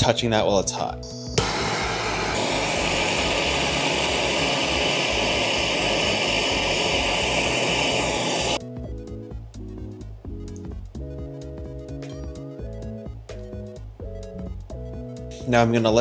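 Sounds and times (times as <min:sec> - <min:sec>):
background music: 0:00.0 - 0:16.0
propane torch hissing: 0:01.4 - 0:08.6.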